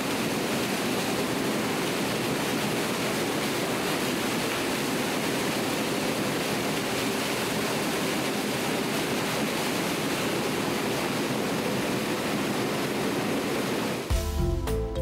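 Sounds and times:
pulper rotor churning water: 0:00.0 - 0:14.1
music: 0:14.1 - 0:15.0.

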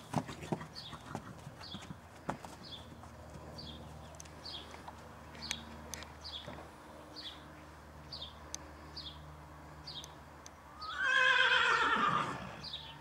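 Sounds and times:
horse whinnying: 0:10.8 - 0:12.6.

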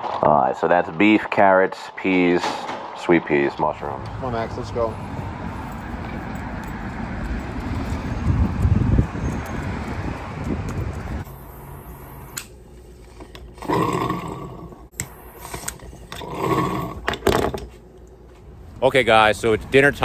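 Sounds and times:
street sound: 0:00.0 - 0:20.0
wind noise on microphone: 0:07.3 - 0:11.3.

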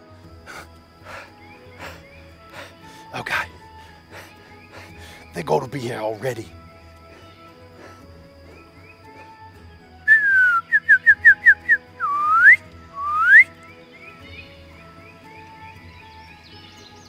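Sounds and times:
soft background music: 0:00.0 - 0:17.0
person whistling: 0:10.1 - 0:13.5.

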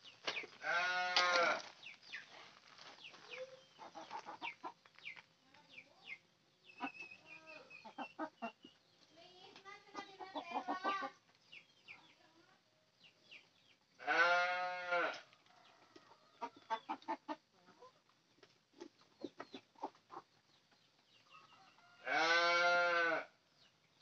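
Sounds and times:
chickens clucking: 0:00.0 - 0:12.2, 0:15.1 - 0:22.5
loud drawn-out animal call: 0:22.0 - 0:23.3.

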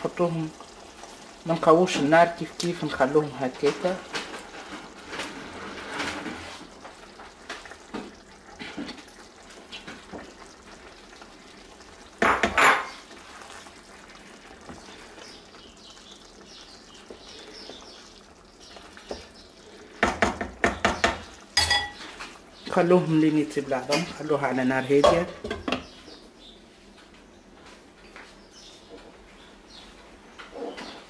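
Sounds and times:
sauce sizzling faintly: 0:00.0 - 0:26.0
spoon and bowl clinking on pan: 0:21.6 - 0:22.2.

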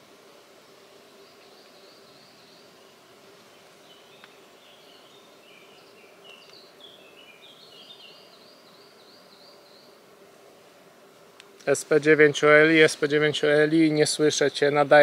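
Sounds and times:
faint hiss: 0:00.0 - 0:15.0
bird chirping: 0:01.1 - 0:10.7.

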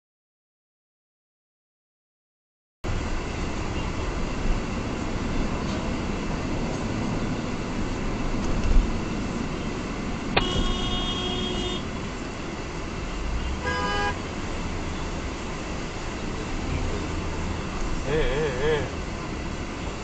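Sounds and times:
traffic and road noise: 0:02.8 - 0:20.0
car horn honks: 0:10.4 - 0:12.0, 0:13.4 - 0:14.2.

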